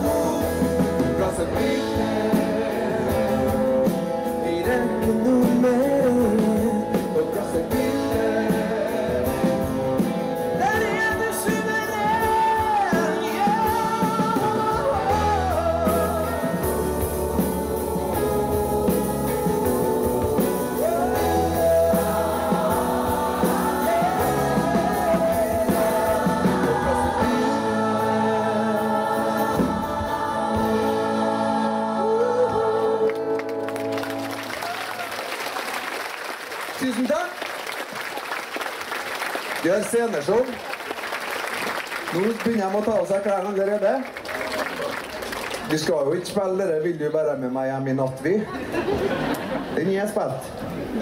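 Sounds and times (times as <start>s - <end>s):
choir voices: 0.0s - 3.9s, 11.6s - 35.0s
person singing melody: 0.0s - 34.2s
acoustic and electric guitars: 0.0s - 34.8s
keyboard: 0.0s - 34.8s
drums: 0.0s - 35.5s.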